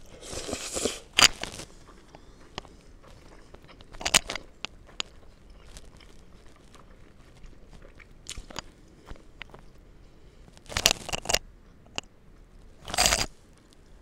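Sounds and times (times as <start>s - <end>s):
person chewing food: 0.0s - 14.0s
wet mouth clicks: 7.3s - 8.7s.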